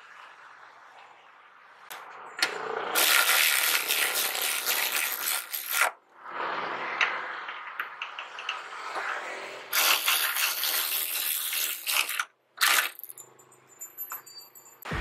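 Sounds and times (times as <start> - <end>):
electric ratchet motor running: 3.0 - 5.8, 9.7 - 13.0.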